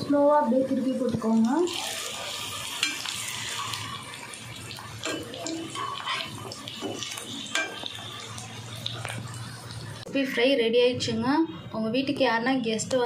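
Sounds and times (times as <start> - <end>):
potato patties sizzling in oil: 0.6 - 10.1
metal spatula scraping and tapping: 2.8 - 3.8, 5.0 - 8.2.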